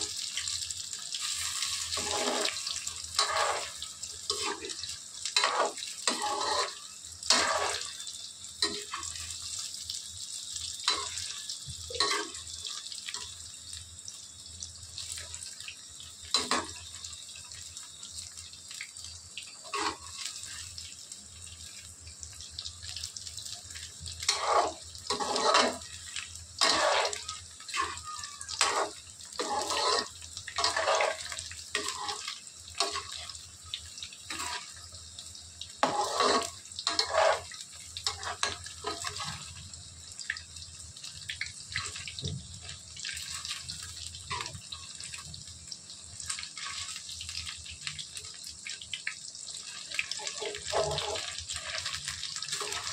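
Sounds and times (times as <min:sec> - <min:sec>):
chicken sizzling in hot oil: 0:00.0 - 0:52.9
spoon scraping and clinking pan: 0:03.2 - 0:04.7, 0:05.4 - 0:08.0, 0:12.0 - 0:12.5, 0:24.2 - 0:25.8, 0:26.6 - 0:27.2, 0:28.6 - 0:33.2, 0:35.8 - 0:39.3.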